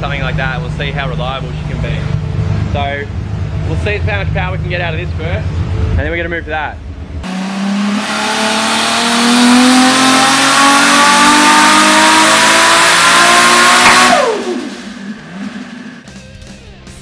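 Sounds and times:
turbocharged car engine revving: 0:00.0 - 0:16.1.

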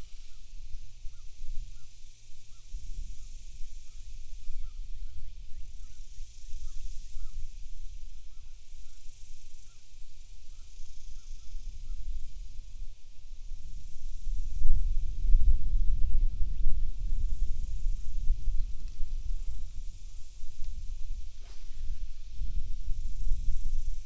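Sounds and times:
steady high-pitched hiss: 0:00.0 - 0:24.0
wind buffeting microphone: 0:13.3 - 0:24.0.

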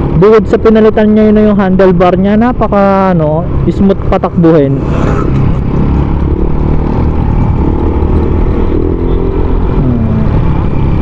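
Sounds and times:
wind rumble on microphone: 0:03.4 - 0:11.0.

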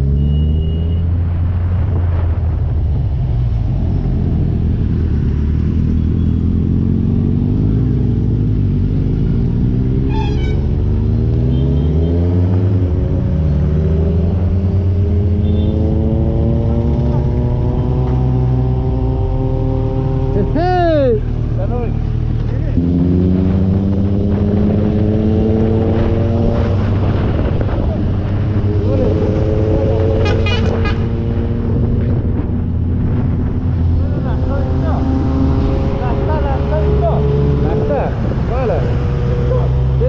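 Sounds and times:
motorcycle engine revving: 0:03.7 - 0:40.0
low rumble: 0:31.6 - 0:39.6.

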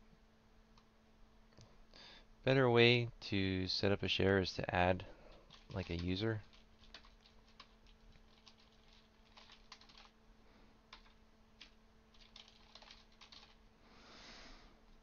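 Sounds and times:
faint steady hum: 0:00.0 - 0:15.0
faint keyboard typing: 0:05.2 - 0:10.2, 0:10.9 - 0:13.6.

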